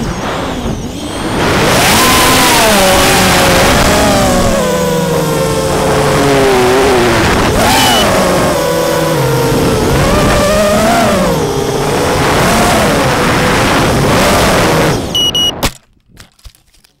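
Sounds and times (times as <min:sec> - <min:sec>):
drone motors and propellers whining: 0:00.0 - 0:15.7
short high beep: 0:07.8 - 0:08.2, 0:15.1 - 0:15.7.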